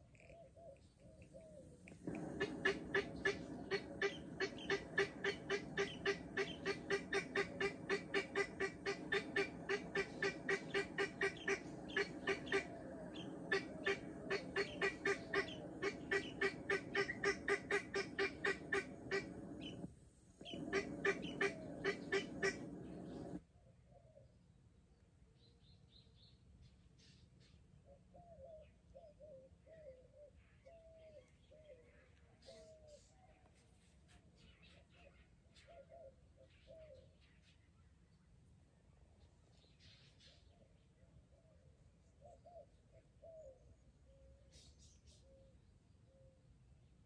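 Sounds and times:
guineafowl cackling: 0:00.0 - 0:23.4.

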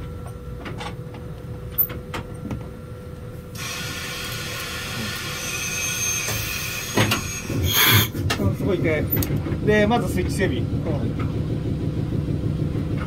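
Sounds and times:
low rumble: 0:08.3 - 0:13.0.

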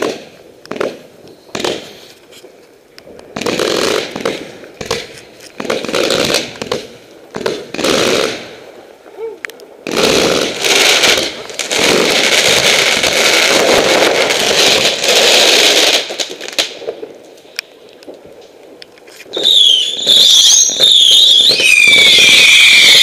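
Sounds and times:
whistling firework: 0:00.0 - 0:02.2, 0:19.2 - 0:23.0
firework fountain hissing crackle: 0:00.0 - 0:23.0.

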